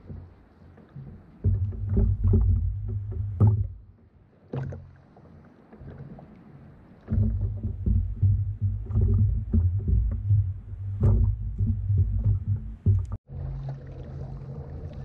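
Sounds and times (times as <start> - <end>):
water rumbling against hull: 0.0 - 15.0
sharp knocks: 1.4 - 3.8, 7.1 - 13.2.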